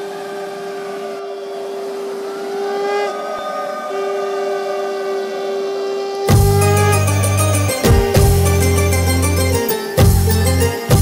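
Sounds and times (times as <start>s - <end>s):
conch shells blown: 0.0s - 10.0s
music: 6.3s - 11.0s.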